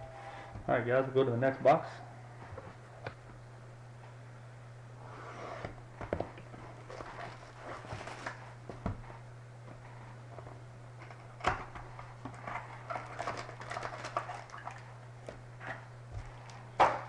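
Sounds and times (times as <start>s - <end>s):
low electrical hum: 0.0s - 17.0s
cardboard and foil crinkling: 6.7s - 8.6s, 11.9s - 15.0s.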